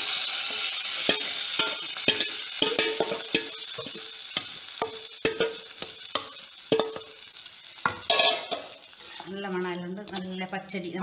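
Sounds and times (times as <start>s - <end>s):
oil sizzling in a pot: 0.0s - 11.0s.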